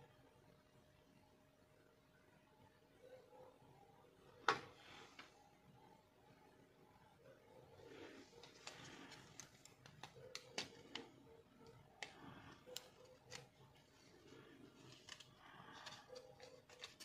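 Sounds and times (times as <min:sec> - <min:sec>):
plastic parts rustling: 0:08.1 - 0:17.0.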